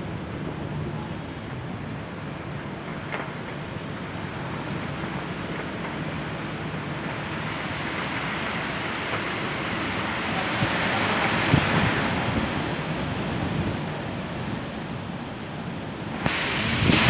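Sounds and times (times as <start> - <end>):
storm wind gusting through trees: 0.0 - 17.0
wind thumping microphone: 16.2 - 17.0.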